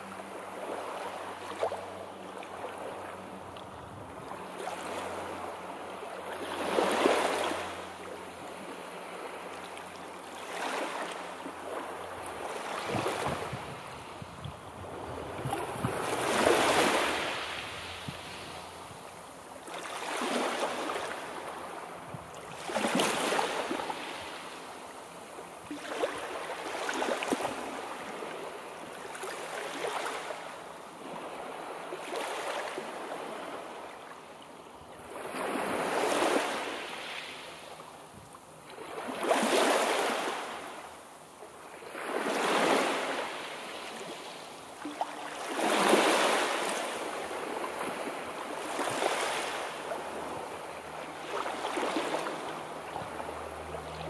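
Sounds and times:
sea waves breaking on shore: 0.0s - 54.0s.

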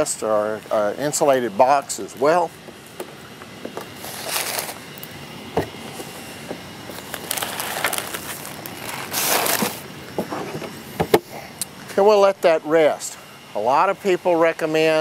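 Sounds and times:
butcher paper crinkling: 3.8s - 5.1s, 6.9s - 9.8s.

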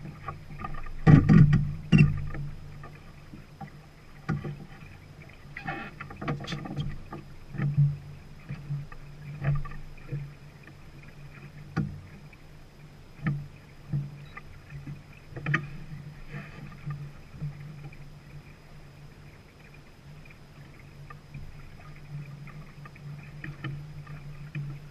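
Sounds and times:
knocks and slaps on a yacht: 0.0s - 4.7s, 6.0s - 10.8s, 11.7s - 12.2s, 13.2s - 15.7s.

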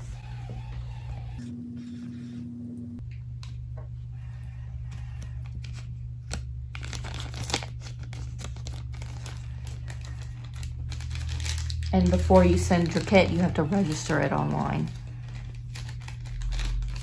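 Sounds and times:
plastic bag crinkling: 5.6s - 17.0s.

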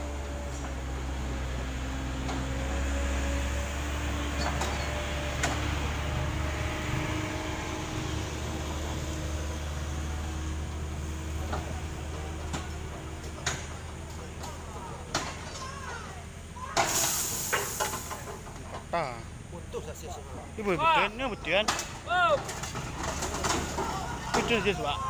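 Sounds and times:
vehicle engine running: 0.0s - 16.7s.

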